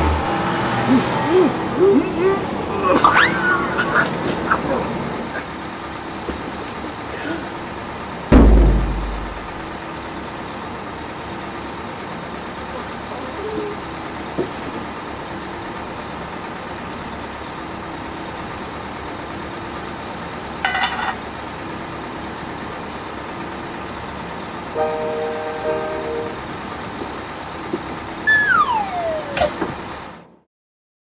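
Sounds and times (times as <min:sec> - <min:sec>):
bus engine running: 0:00.0 - 0:30.4
brief high tone: 0:24.8 - 0:26.5, 0:28.3 - 0:29.4
falling whistle-like glide: 0:28.3 - 0:29.6.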